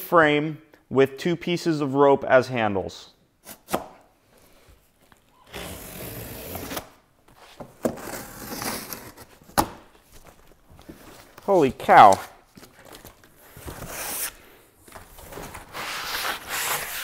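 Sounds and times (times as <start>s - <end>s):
box cutter slicing packing tape: 5.5s - 7.0s, 7.8s - 9.7s, 15.7s - 17.0s.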